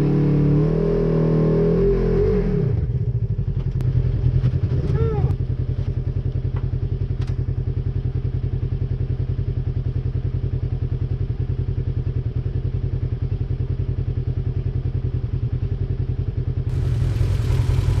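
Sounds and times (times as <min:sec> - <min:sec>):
engine idling: 0:16.7 - 0:18.0.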